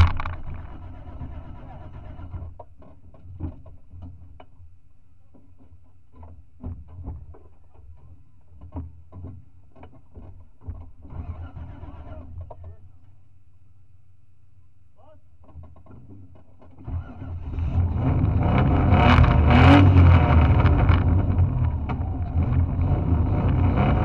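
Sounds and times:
knocks and rattles: 0:00.0 - 0:01.6, 0:02.2 - 0:04.6, 0:05.3 - 0:11.2
vehicle engine humming: 0:00.0 - 0:02.6, 0:16.8 - 0:24.0.

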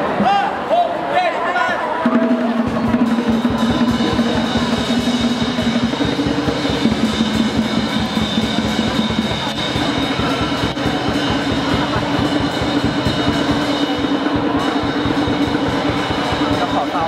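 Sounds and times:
fast drumbeat: 0:02.0 - 0:17.0.

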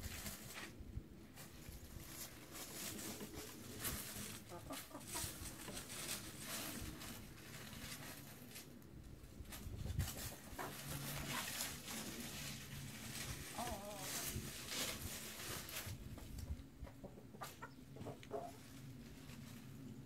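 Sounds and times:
rustling in dry leaves: 0:00.0 - 0:16.6, 0:17.4 - 0:20.0
hens clucking: 0:02.6 - 0:06.5, 0:09.9 - 0:15.2, 0:16.4 - 0:18.8.

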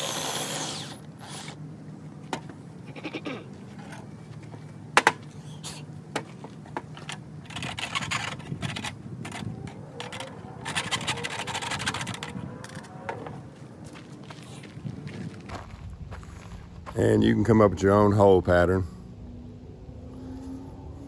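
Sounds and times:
drill grinding through sheet metal: 0:00.0 - 0:01.6.

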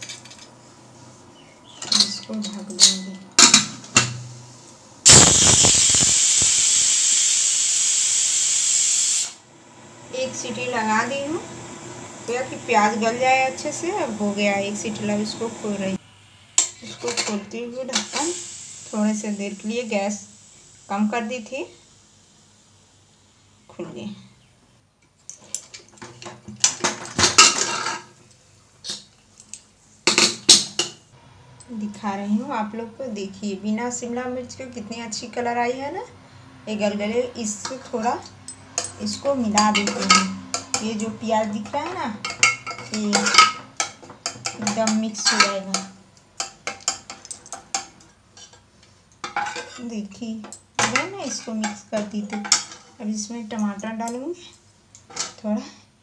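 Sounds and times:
metal lid clinking and scraping: 0:01.8 - 0:04.2, 0:38.5 - 0:40.9
pressure cooker hissing steam: 0:05.0 - 0:09.4, 0:10.2 - 0:16.0, 0:17.9 - 0:21.1.

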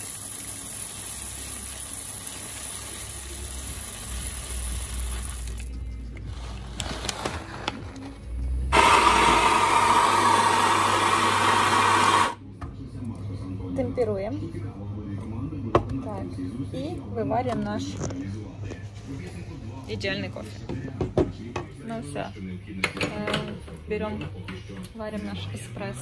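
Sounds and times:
electric coffee grinder grinding: 0:00.0 - 0:05.7, 0:08.7 - 0:12.4
coffee beans pouring into hopper: 0:00.0 - 0:07.5, 0:08.7 - 0:12.4.

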